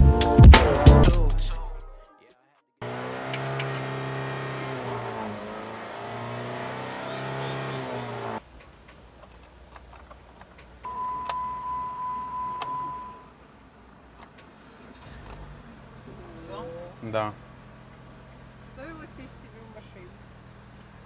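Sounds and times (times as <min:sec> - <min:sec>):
background music: 0:00.0 - 0:02.4
electronic warning tone: 0:10.9 - 0:13.3.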